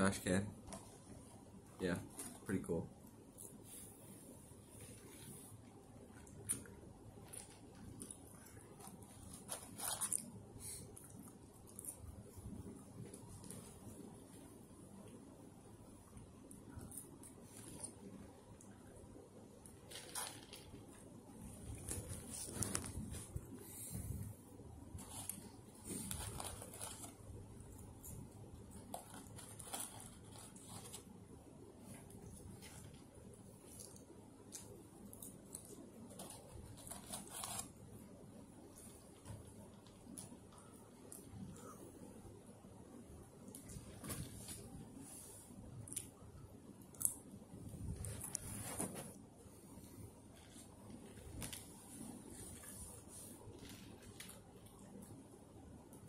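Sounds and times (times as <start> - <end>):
paper wrapping rustling: 19.8 - 21.0, 21.6 - 23.5, 25.0 - 27.4, 28.8 - 31.1, 36.0 - 37.8.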